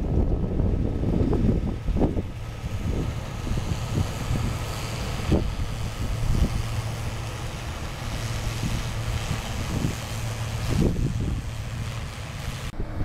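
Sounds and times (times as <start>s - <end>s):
combine harvester humming: 0.0s - 13.0s
wind thumps on microphone: 0.0s - 13.0s.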